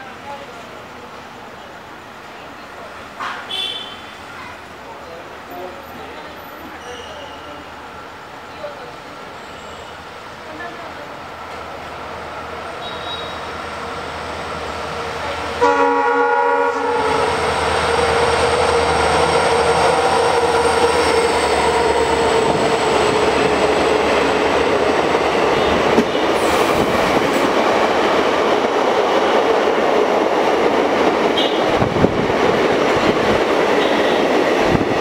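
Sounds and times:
train coaches rumbling past: 0:00.0 - 0:35.0
diesel locomotive running: 0:11.4 - 0:35.0
train horn blast: 0:15.6 - 0:17.3.

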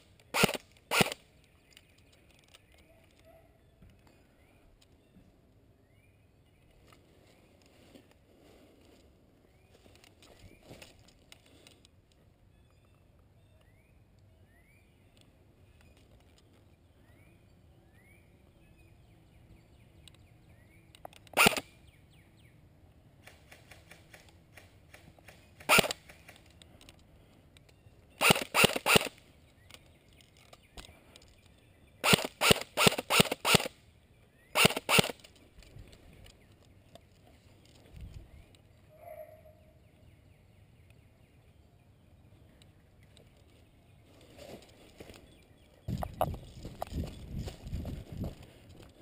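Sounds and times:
airsoft rifle firing: 0:00.3 - 0:01.2, 0:21.4 - 0:21.7, 0:28.2 - 0:29.2, 0:32.0 - 0:33.8, 0:34.6 - 0:35.2.

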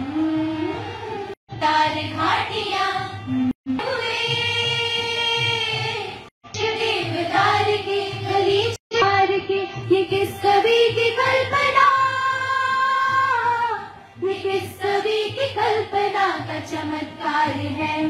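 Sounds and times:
young female voices singing: 0:01.6 - 0:18.0.

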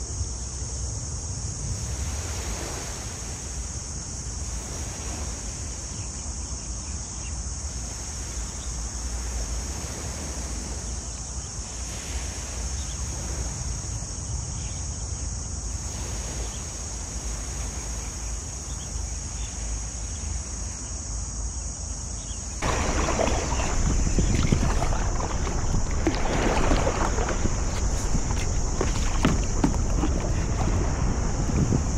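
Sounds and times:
small waves lapping on sand: 0:01.6 - 0:14.4, 0:15.5 - 0:20.7, 0:22.6 - 0:31.9
water splashing around paddleboard: 0:22.6 - 0:31.9
wind on microphone: 0:22.6 - 0:31.9.

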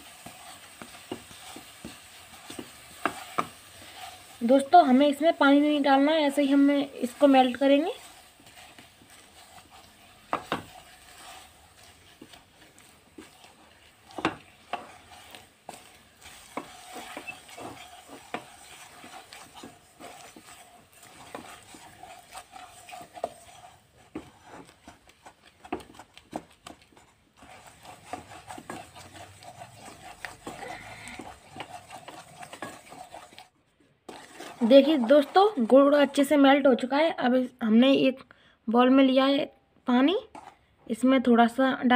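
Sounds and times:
faint sizzle: 0:00.0 - 0:24.7, 0:27.4 - 0:33.5
wooden spatula scraping pan: 0:00.0 - 0:37.2, 0:40.2 - 0:40.7.

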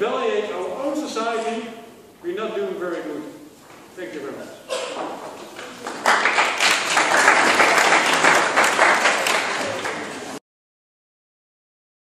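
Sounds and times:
audience applauding: 0:05.4 - 0:10.4.

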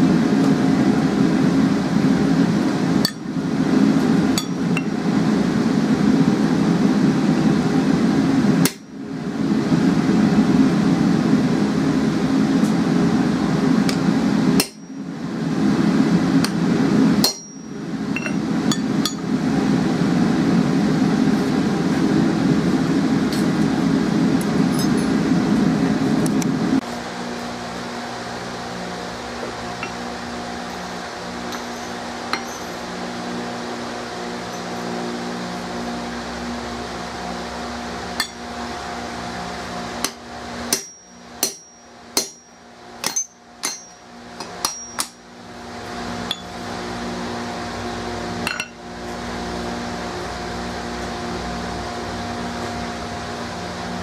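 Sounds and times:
gas forge burner roaring: 0:00.0 - 0:54.0
hammer striking steel on anvil: 0:04.4 - 0:05.0, 0:14.6 - 0:15.0, 0:17.2 - 0:19.3, 0:32.3 - 0:32.7, 0:38.2 - 0:38.5, 0:40.0 - 0:45.2, 0:46.3 - 0:46.5, 0:48.5 - 0:48.8.

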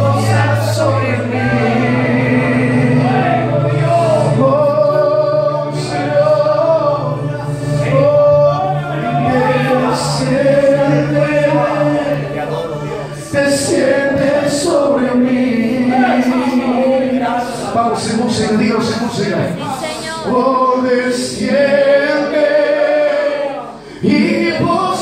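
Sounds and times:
low keyboard chords: 0:00.0 - 0:19.6
man and congregation singing: 0:00.0 - 0:25.0.

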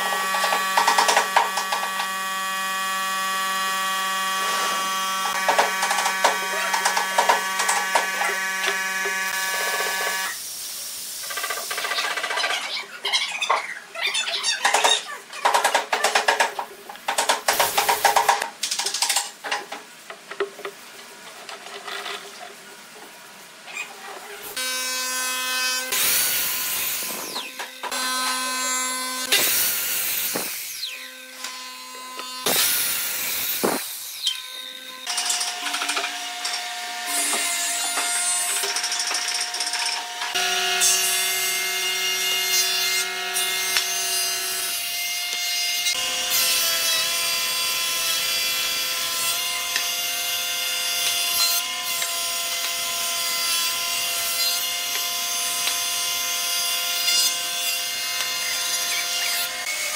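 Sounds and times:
miter saw motor whine: 0:00.0 - 0:10.4
saw cutting wood: 0:00.0 - 0:10.4, 0:24.4 - 0:59.9
steady electric buzz: 0:00.0 - 0:11.3, 0:24.4 - 0:38.6.

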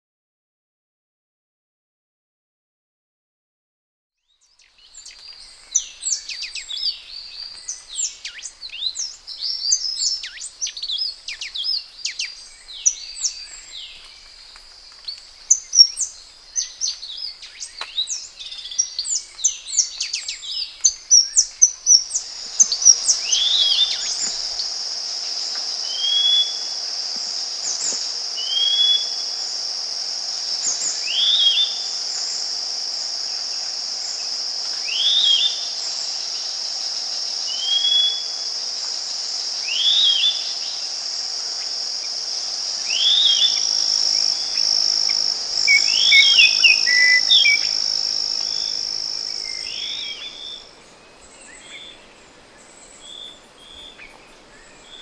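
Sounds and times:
birds chirping: 0:04.6 - 0:55.0
high-pitched insect drone: 0:04.9 - 0:55.0
low hum: 0:22.1 - 0:39.7, 0:40.4 - 0:50.4.

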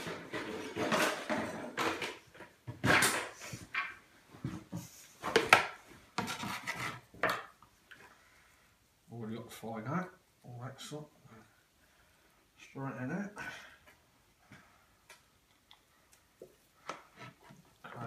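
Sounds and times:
rustling and knocking handling noises: 0:00.0 - 0:08.2, 0:16.2 - 0:18.0.

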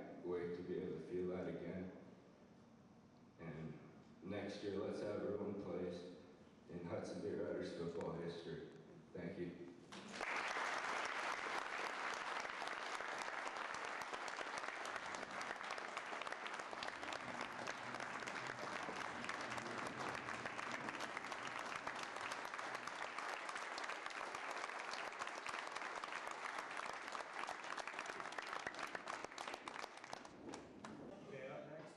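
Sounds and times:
audience clapping: 0:09.9 - 0:31.0.

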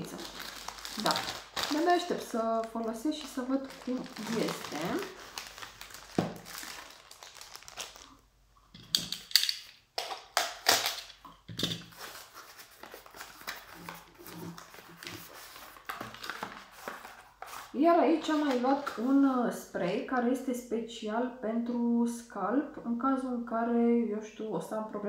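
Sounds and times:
packaging crinkling and rustling: 0:00.0 - 0:08.3, 0:09.1 - 0:19.1.

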